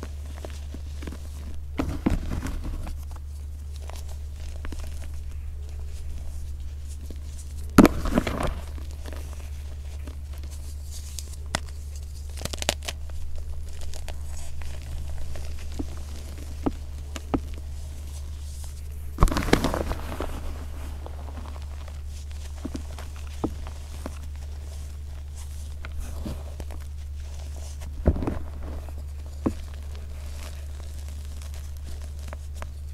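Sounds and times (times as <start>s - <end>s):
chalk crumbling and crackling: 0.0s - 32.9s
steady low hum: 0.0s - 32.9s.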